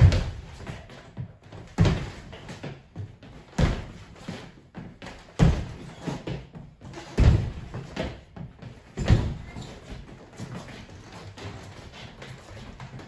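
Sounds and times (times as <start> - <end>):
sneakers landing on hardwood floor: 0.0 - 10.2.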